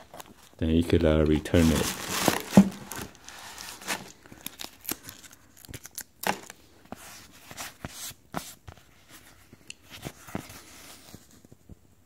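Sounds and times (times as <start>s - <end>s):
rustling and scratching: 0.0s - 4.2s
tissue paper crinkling: 0.0s - 11.4s.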